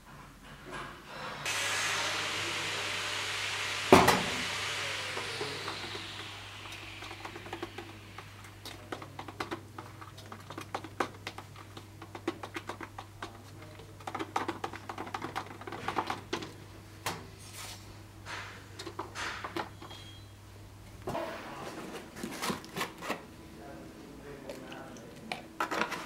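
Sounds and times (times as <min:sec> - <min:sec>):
steady low hum: 0:01.1 - 0:10.5.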